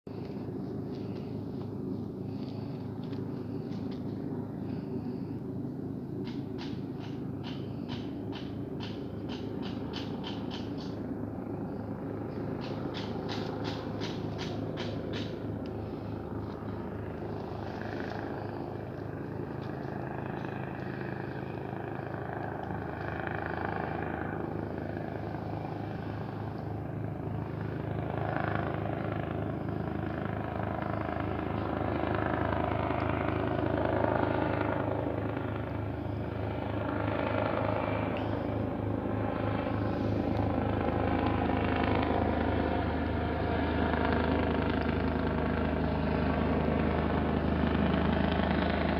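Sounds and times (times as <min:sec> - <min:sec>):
engine drone: 0:00.0 - 0:48.9.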